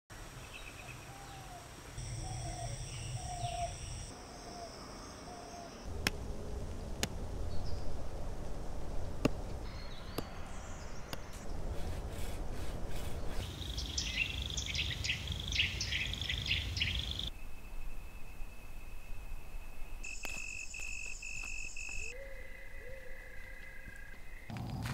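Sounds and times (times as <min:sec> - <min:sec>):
low rumble: 0:05.9 - 0:13.4
high bird chirping: 0:13.2 - 0:24.5.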